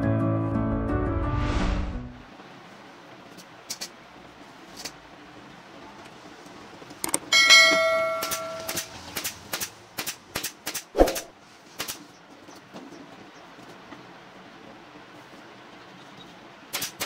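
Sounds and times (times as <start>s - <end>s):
metallic clang ringing: 7.4s - 8.9s
pneumatic staple gun firing: 8.3s - 12.0s, 16.7s - 17.0s.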